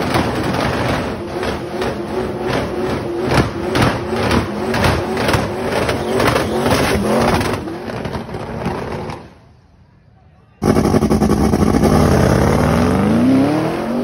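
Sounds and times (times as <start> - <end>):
car engine revving hard: 0.0 - 9.2, 10.6 - 14.0
tyres spinning: 0.0 - 9.4.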